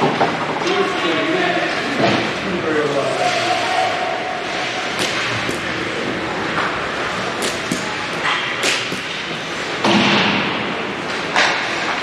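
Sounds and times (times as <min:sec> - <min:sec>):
arena background noise: 0:00.0 - 0:12.0
hockey sticks and puck clacking: 0:04.4 - 0:10.4.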